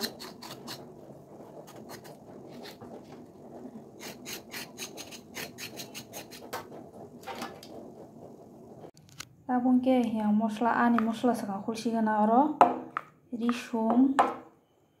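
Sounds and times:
blade scraping gourd skin: 0.0 - 1.0, 1.6 - 2.9, 4.0 - 6.6.

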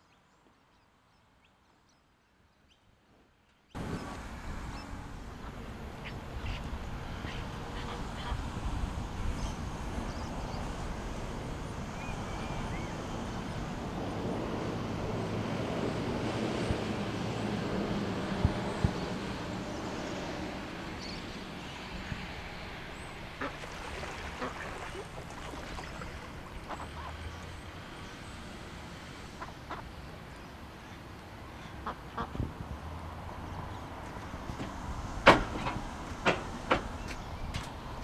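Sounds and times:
wind rumbling on microphone: 3.8 - 27.1, 32.2 - 38.0
waterfowl calling: 23.4 - 27.3.

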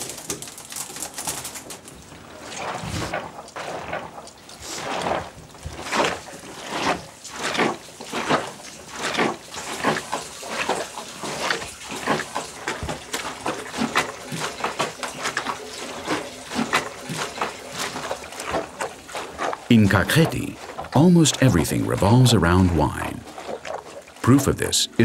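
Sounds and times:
grapes squelching under feet: 17.8 - 24.8.

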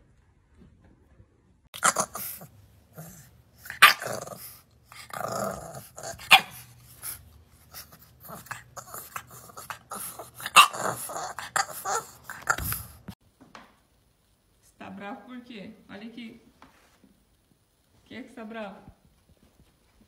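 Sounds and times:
puppy barking: 1.8 - 7.2, 7.8 - 13.0
puppy growling: 1.8 - 13.2.

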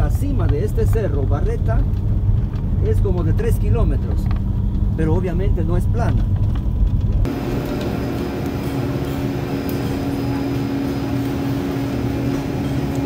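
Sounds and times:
lift machinery humming: 7.2 - 13.0.

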